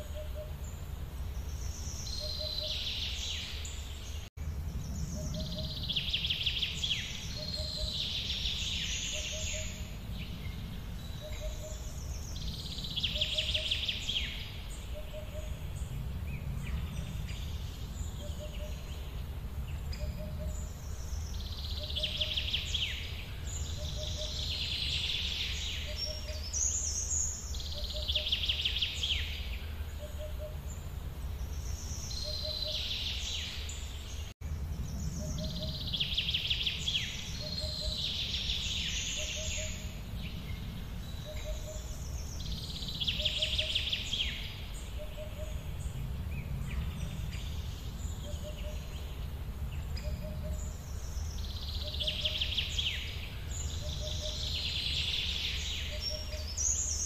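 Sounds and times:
birdsong: 0.0s - 57.0s
steady low rumble: 4.2s - 25.0s, 34.2s - 55.0s.

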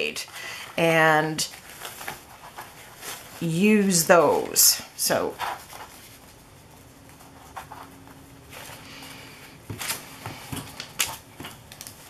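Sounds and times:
paper napkins rustling: 0.0s - 12.0s.

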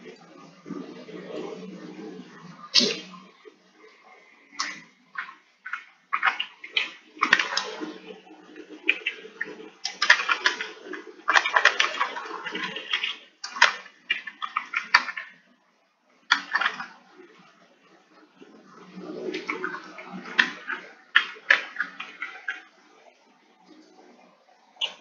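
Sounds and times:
keyboard typing: 4.6s - 8.0s, 8.8s - 15.3s.

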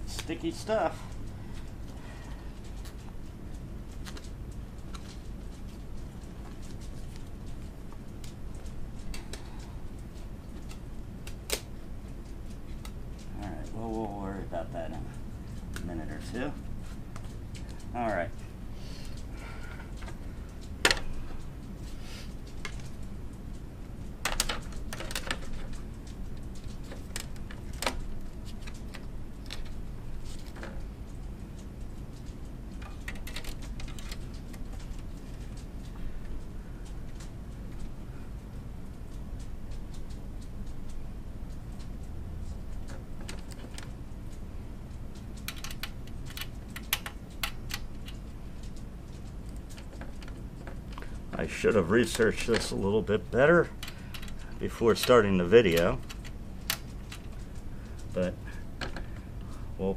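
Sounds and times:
steady low hum: 0.0s - 59.9s
metal tools clicking and tapping: 45.1s - 59.2s.

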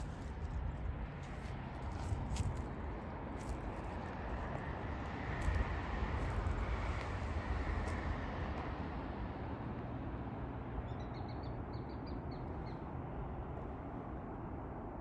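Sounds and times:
outdoor rumble and hiss: 0.0s - 15.0s
songbirds chirping: 10.8s - 13.5s.

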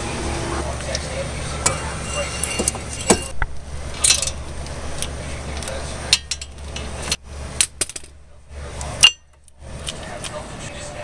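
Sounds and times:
low steady hum: 0.0s - 11.0s
ratchet clinking on metal: 1.6s - 3.3s, 4.0s - 4.5s, 5.6s - 8.2s, 8.9s - 10.0s.

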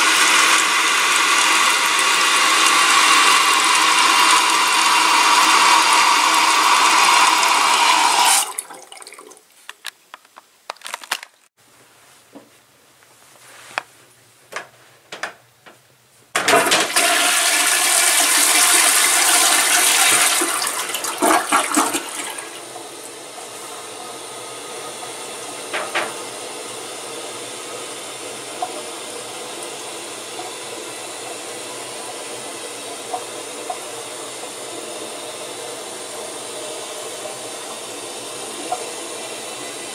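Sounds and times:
toilet flushing: 0.0s - 9.4s, 16.4s - 39.9s
running water: 0.0s - 9.6s
clicks and knocks: 14.5s - 15.8s.

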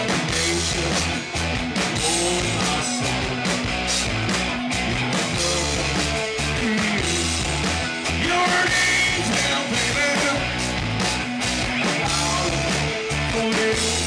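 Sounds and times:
man singing into a microphone: 0.0s - 1.2s, 1.9s - 3.6s, 5.2s - 7.5s, 8.2s - 10.5s, 11.8s - 14.0s
live rock band playing: 0.0s - 14.0s.

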